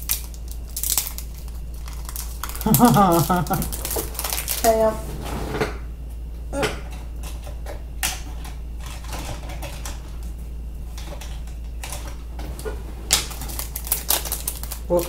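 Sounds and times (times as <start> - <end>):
plastic bag crinkling: 0.0 - 5.0, 11.0 - 15.0
steady low hum: 0.0 - 15.0.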